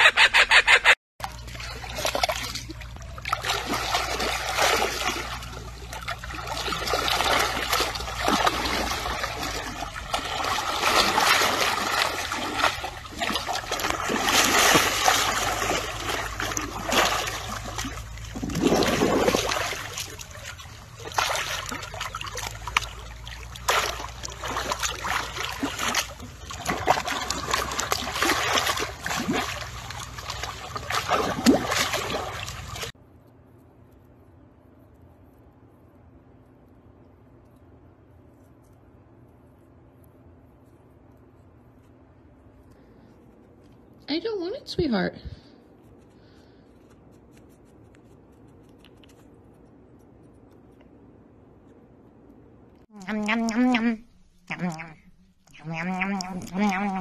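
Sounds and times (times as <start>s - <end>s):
muddy water splashing: 1.2s - 33.0s, 52.9s - 57.0s.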